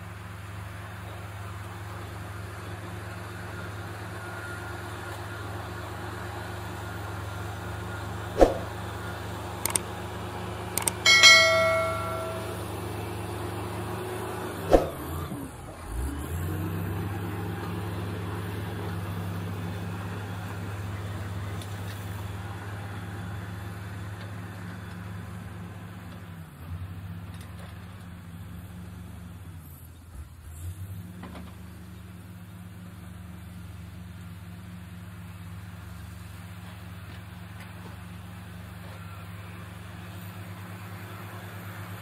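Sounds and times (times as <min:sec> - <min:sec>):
heavy diesel engines running: 0:00.0 - 0:42.0
ringing metal clang: 0:10.9 - 0:12.8
sharp knocks: 0:11.1 - 0:12.6.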